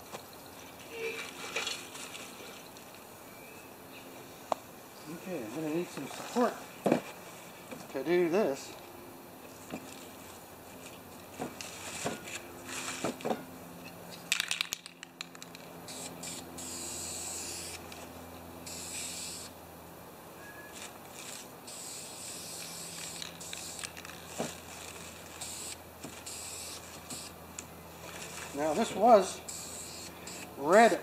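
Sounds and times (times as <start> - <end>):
aerosol spray can hissing: 15.8 - 17.8, 18.7 - 19.5, 21.2 - 24.0, 25.4 - 27.3, 29.5 - 30.5.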